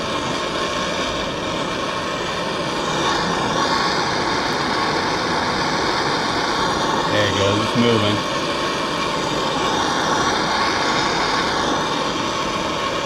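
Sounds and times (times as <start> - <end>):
gas torch hissing: 0.0 - 13.0.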